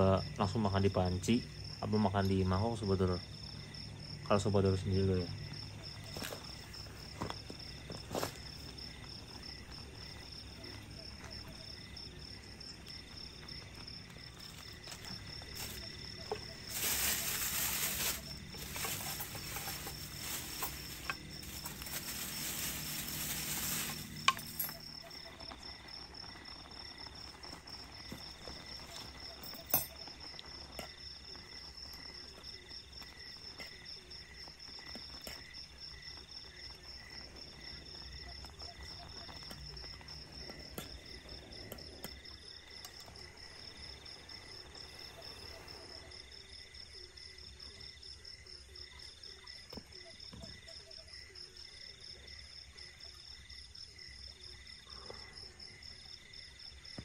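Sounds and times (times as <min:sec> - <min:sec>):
crickets chirping: 0:00.0 - 0:57.0
loud hiss: 0:15.5 - 0:24.5.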